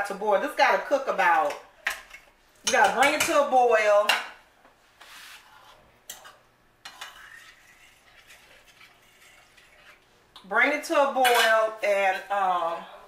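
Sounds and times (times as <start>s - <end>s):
utensil scraping skillet: 4.9s - 10.2s.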